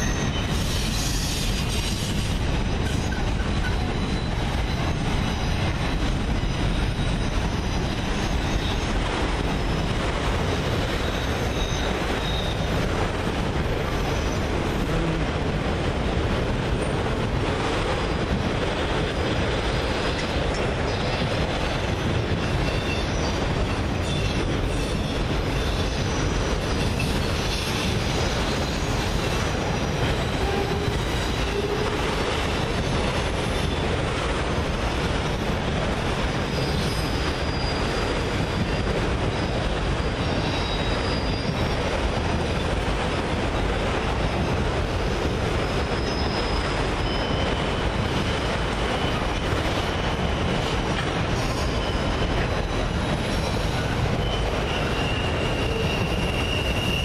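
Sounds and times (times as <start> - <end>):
train wheels rumbling on rails: 0.0 - 57.0
faint high wheel squeals: 10.8 - 12.8, 21.9 - 29.0, 36.3 - 42.0, 45.6 - 57.0.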